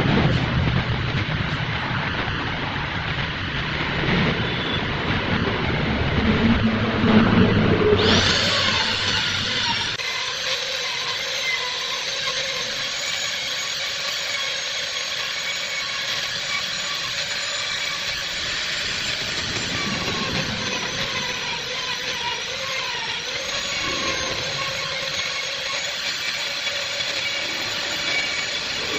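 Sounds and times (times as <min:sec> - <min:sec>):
rotary tool grinding wood: 0:08.0 - 0:28.9.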